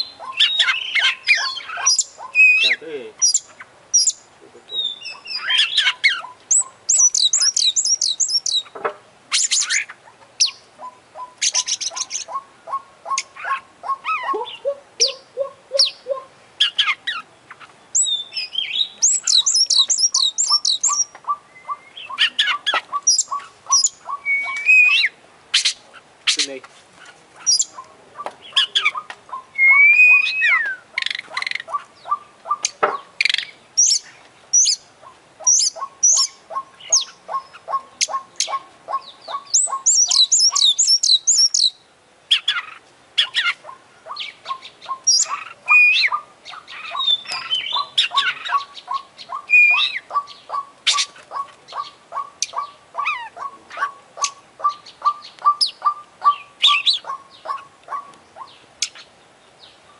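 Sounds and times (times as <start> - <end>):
bird singing varied song: 0.0 - 59.9.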